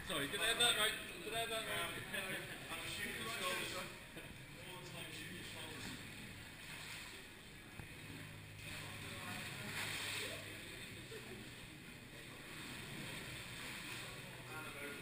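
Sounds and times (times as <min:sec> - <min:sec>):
oars splashing through water: 0:05.6 - 0:15.0.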